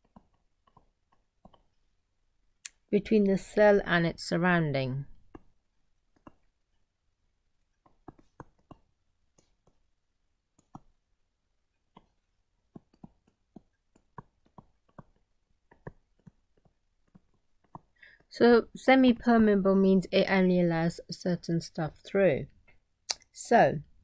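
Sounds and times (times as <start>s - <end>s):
faint clicks and taps: 0.0s - 1.9s, 5.2s - 6.9s, 7.6s - 9.9s, 10.5s - 11.0s, 11.7s - 18.3s.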